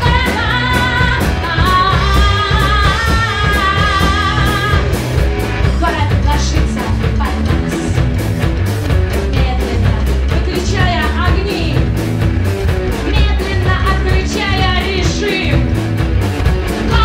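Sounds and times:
woman singing: 0:00.0 - 0:05.0, 0:05.6 - 0:08.2, 0:09.2 - 0:12.0, 0:13.0 - 0:15.8, 0:16.8 - 0:17.0
rock band playing: 0:00.0 - 0:17.0.

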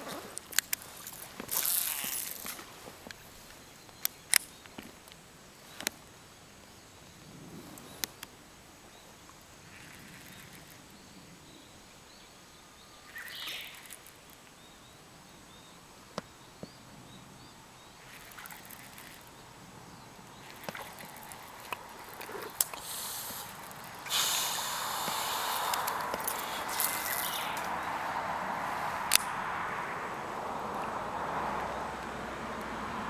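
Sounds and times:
small clicks: 0:00.4 - 0:05.2, 0:13.3 - 0:14.5, 0:18.1 - 0:19.3
faint bird chirps: 0:08.9 - 0:24.0.

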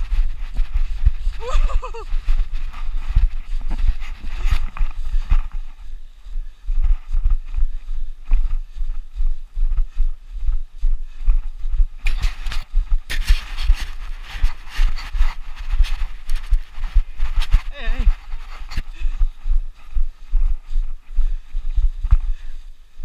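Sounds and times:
running footfalls on snow: 0:00.0 - 0:23.0.

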